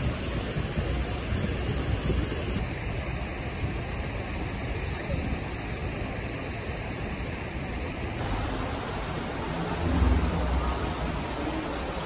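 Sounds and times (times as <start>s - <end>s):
wind rumbling on microphone: 0.0s - 2.6s, 7.8s - 12.0s
stream running over rocks: 0.0s - 12.0s.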